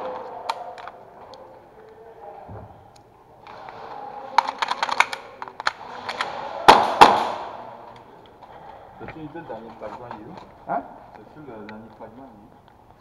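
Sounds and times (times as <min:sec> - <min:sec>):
airsoft gunfire: 0:06.2 - 0:07.7.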